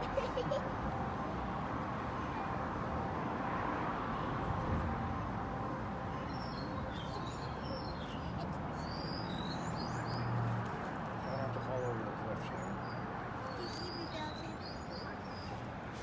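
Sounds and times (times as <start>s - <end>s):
low outdoor background murmur: 0.0s - 16.0s
birds chirping: 6.2s - 10.4s, 11.2s - 15.7s.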